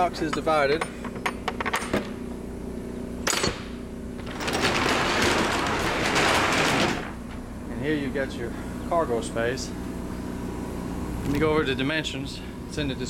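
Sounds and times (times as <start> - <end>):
generator humming: 0.9 - 13.0
cargo door sliding open: 4.2 - 7.4.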